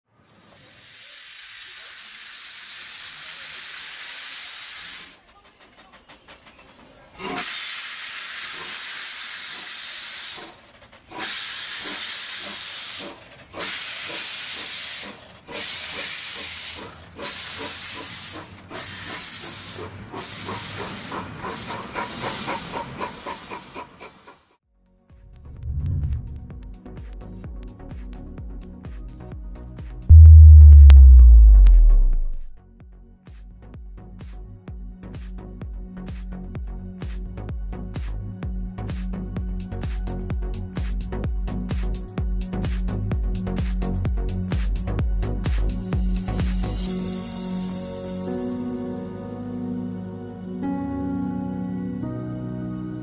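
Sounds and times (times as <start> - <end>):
steam locomotive hissing steam: 0.1 - 24.6, 45.2 - 48.8.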